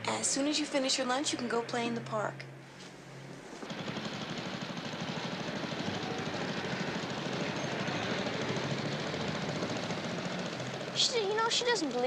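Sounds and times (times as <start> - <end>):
lawn mower engine running: 3.4 - 12.0.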